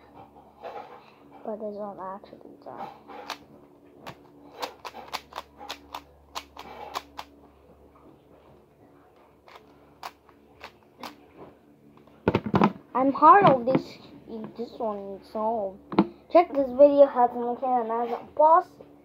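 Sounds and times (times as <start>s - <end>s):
plastic puzzle cube clicking turns: 4.6s - 7.3s.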